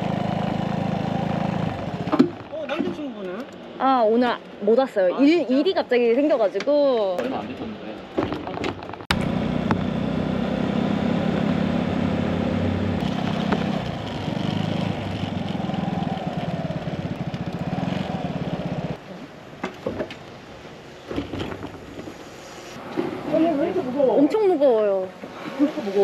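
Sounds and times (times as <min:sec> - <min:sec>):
scooter engine running: 0:00.0 - 0:02.3, 0:09.1 - 0:19.0.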